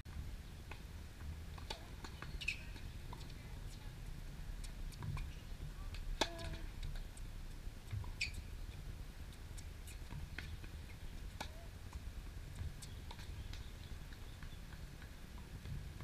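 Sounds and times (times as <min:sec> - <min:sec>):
tennis shoes squeaking: 0:01.6 - 0:04.0, 0:04.6 - 0:07.1, 0:07.9 - 0:12.0, 0:12.6 - 0:15.5.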